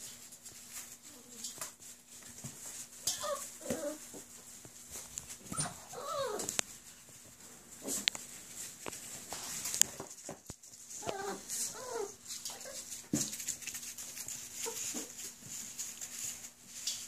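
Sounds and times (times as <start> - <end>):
puppies whimpering and whining: 3.0 - 4.2, 5.3 - 6.6, 10.8 - 12.9.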